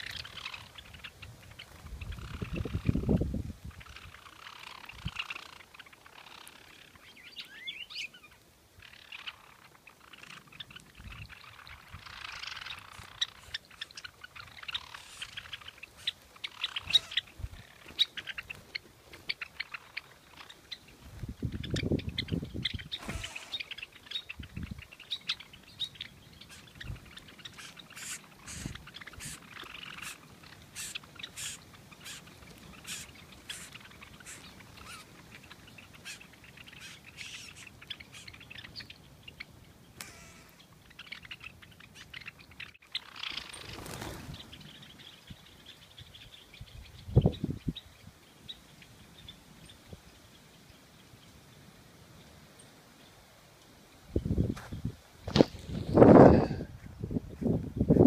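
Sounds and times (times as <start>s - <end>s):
birds chirping: 0.0s - 58.0s.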